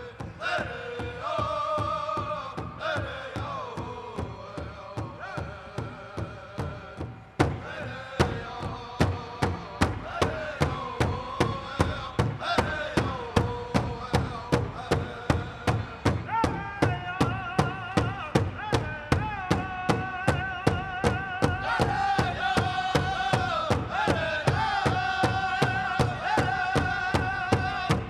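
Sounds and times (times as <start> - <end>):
big drum beating: 0.0 - 28.0
singers chanting in unison: 0.0 - 28.0.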